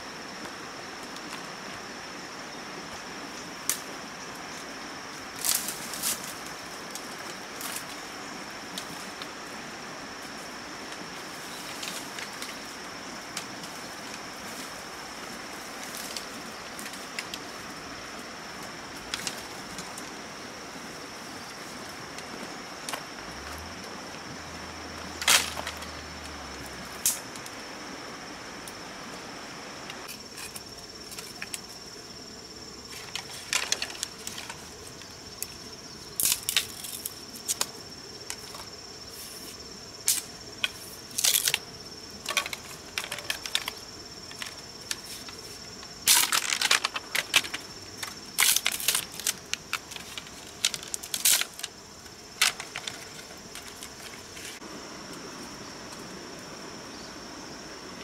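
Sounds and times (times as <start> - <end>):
insects trilling: 0.0 - 58.0
crackling and rustling of gear: 4.5 - 9.4, 10.2 - 20.2, 24.9 - 27.6, 32.8 - 54.6.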